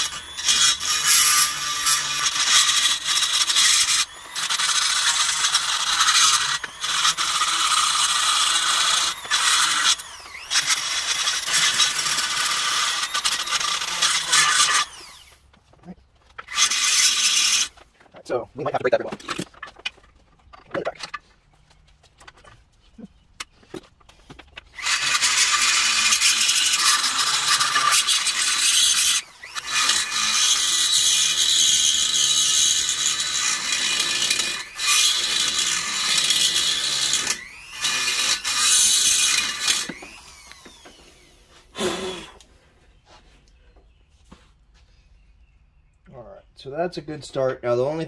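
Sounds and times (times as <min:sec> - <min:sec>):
die grinder grinding metal: 0:00.0 - 0:15.5, 0:16.3 - 0:21.3, 0:24.6 - 0:42.5.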